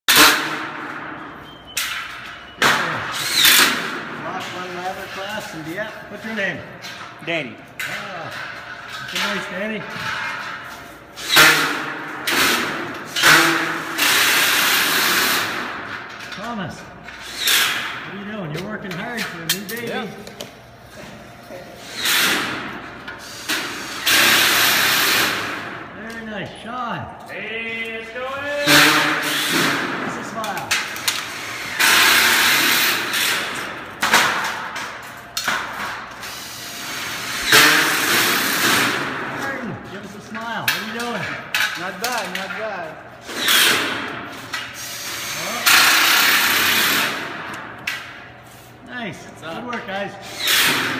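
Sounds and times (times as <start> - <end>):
power drill driving screws: 44.8 - 47.2, 50.3 - 50.9.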